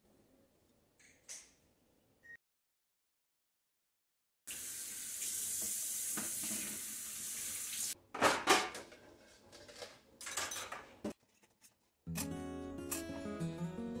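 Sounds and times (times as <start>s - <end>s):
tap running water into sink: 4.5s - 8.0s
dishes clattering in drying rack: 8.2s - 11.2s.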